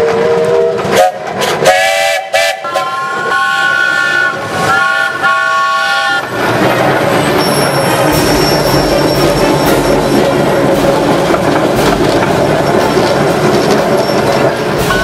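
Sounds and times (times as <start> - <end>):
steam engine whistle blowing: 0.1 - 6.2.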